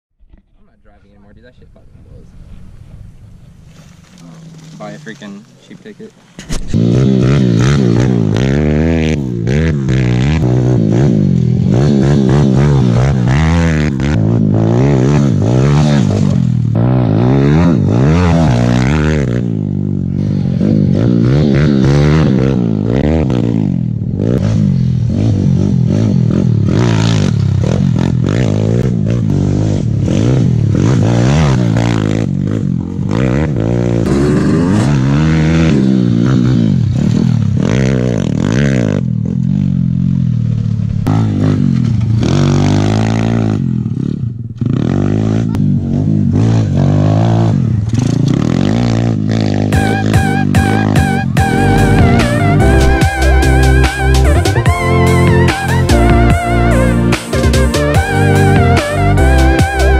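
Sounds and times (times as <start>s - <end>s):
pit bike engines revving: 0.8s - 59.9s.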